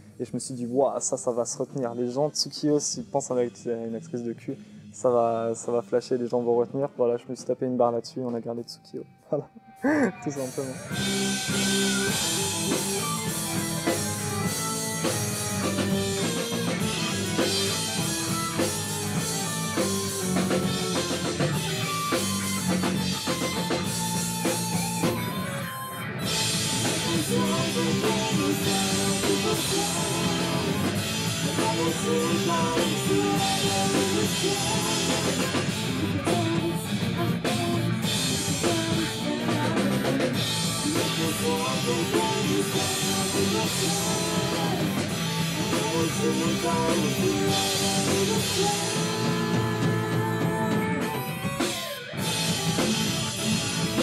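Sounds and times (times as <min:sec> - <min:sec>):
electric guitar: 0:09.0 - 0:54.0
bass guitar: 0:09.3 - 0:54.0
drum kit: 0:09.6 - 0:54.0.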